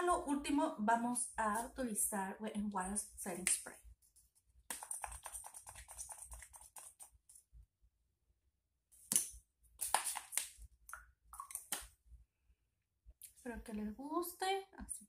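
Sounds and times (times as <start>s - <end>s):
spray bottle hissing sprays: 9.8s - 10.5s.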